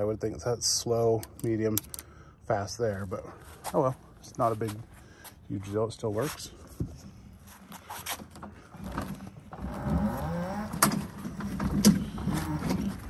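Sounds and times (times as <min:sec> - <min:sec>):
electric motor whirring: 0:09.6 - 0:13.0.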